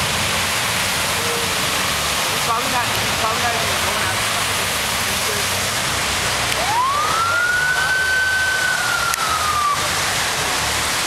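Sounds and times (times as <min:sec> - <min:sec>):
heavy rain and rushing water: 0:00.0 - 0:11.0
siren wail: 0:06.6 - 0:09.9.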